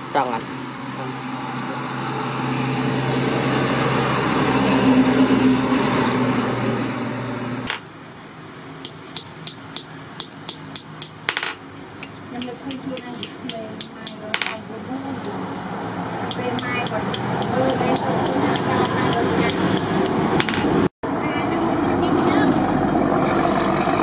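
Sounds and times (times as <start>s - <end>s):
hammer tapping on steel anvil: 8.8s - 14.6s, 16.3s - 20.7s.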